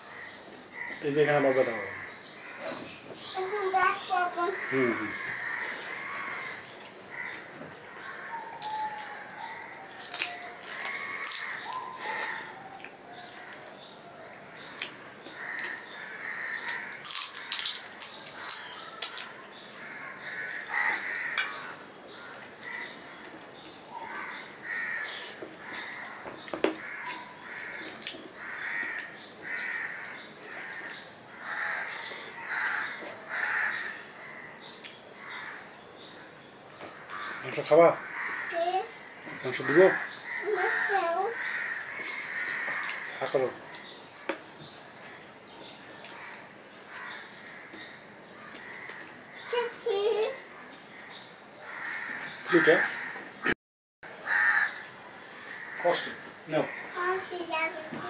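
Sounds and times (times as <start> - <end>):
bird calling: 1.6 - 13.7
man chewing food: 8.5 - 13.8, 16.6 - 19.4, 41.8 - 49.4.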